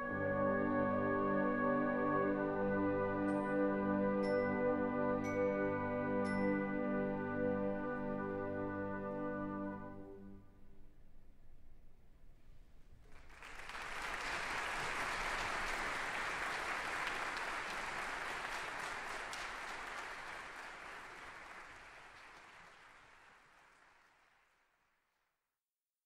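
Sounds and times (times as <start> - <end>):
audience applauding: 13.1 - 25.0.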